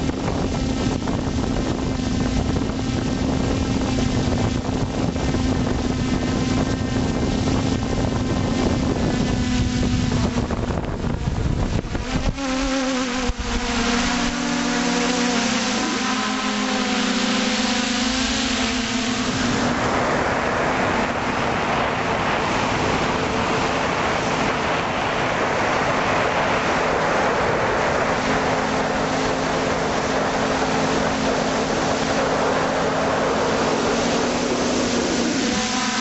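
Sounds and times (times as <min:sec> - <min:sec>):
drone propellers humming: 0:00.0 - 0:36.0
wind on microphone: 0:00.0 - 0:36.0.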